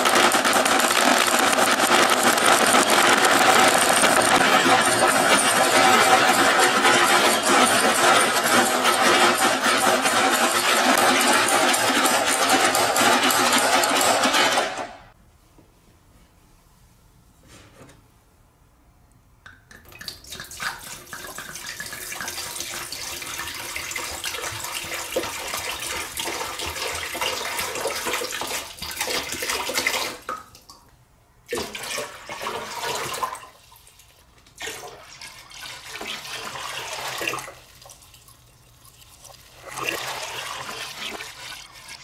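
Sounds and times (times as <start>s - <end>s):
water pouring into glass tank: 31.5s - 42.0s.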